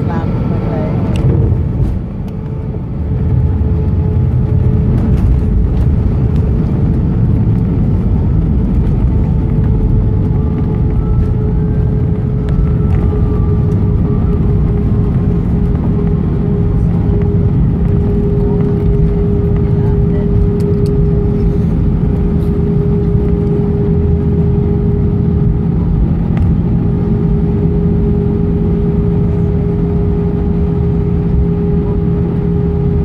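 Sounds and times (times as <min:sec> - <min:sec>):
jet engines humming: 0:00.0 - 0:33.0
wheels rumbling on taxiway: 0:00.0 - 0:33.0.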